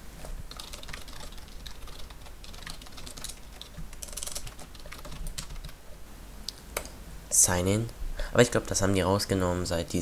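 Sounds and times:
computer keyboard typing: 0.5s - 5.8s.

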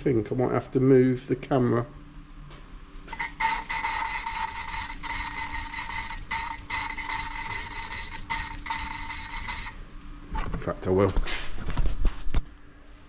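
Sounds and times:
gritty rasping of valve lapping: 3.1s - 9.8s.

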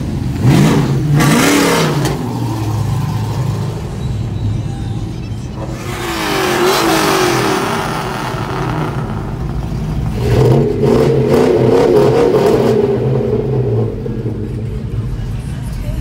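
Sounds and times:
pickup truck engines revving: 0.0s - 16.0s.

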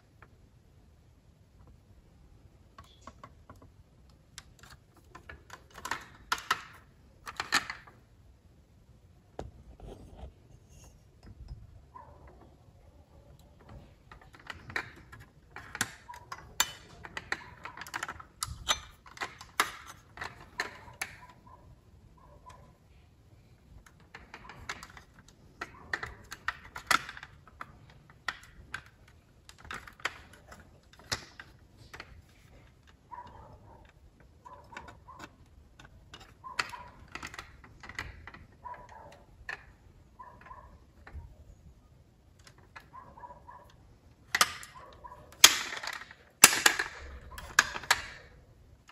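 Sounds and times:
small hinges clicking: 1.5s - 8.2s, 9.4s - 48.9s
metal model car clicks and rattles: 2.6s - 8.1s, 10.6s - 22.8s, 23.4s - 41.6s, 42.2s - 48.9s.

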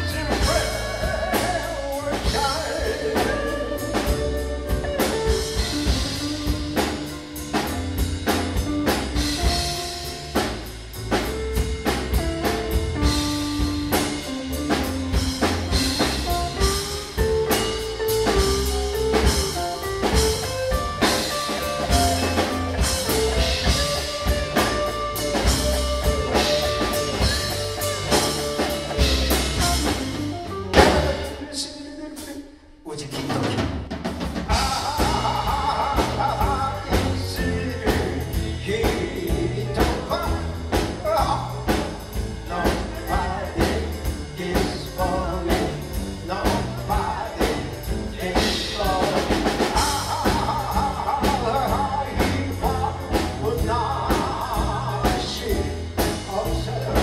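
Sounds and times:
bass line: 0.0s - 31.8s, 33.2s - 57.0s
drum kit: 0.0s - 57.0s
electric guitar melody: 2.7s - 10.4s, 11.5s - 31.3s.

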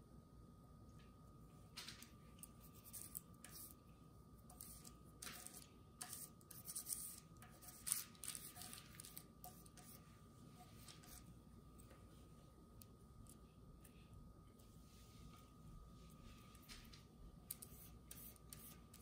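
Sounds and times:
fork scraping paint on paper: 2.4s - 3.8s, 4.4s - 11.3s, 17.5s - 19.0s.

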